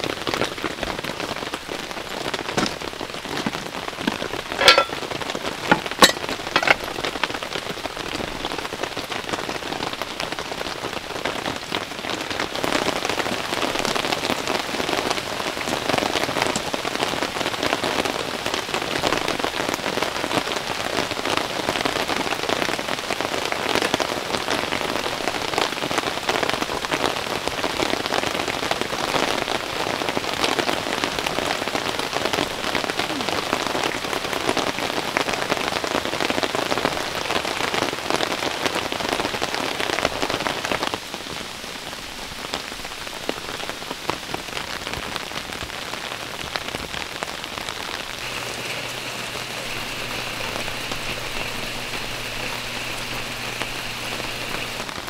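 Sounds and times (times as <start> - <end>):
rain falling in forest: 0.0 - 55.0
rain pattering on tarp: 0.0 - 55.0.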